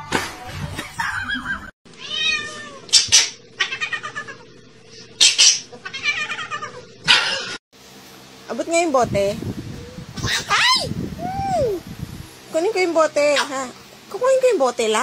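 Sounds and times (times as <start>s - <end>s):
cat meowing and yowling: 2.0s - 2.8s, 5.8s - 6.8s.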